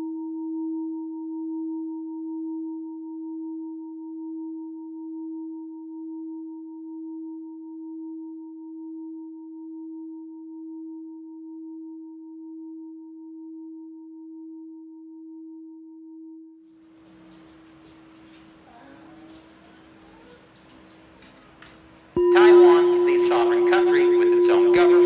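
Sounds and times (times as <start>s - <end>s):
sustained ringing tone: 22.2s - 25.0s.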